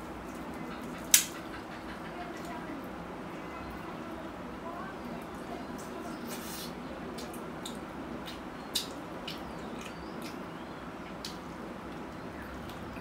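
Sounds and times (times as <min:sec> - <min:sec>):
chewing and lip-smacking: 0:07.1 - 0:13.0.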